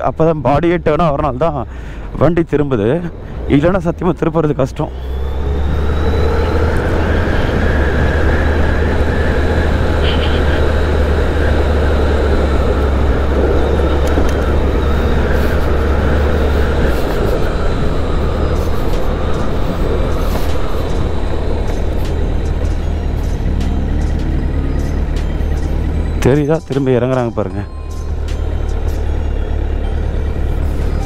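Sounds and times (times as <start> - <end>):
motorcycle running: 0.0 - 31.0
wind rumbling on microphone: 5.5 - 23.2.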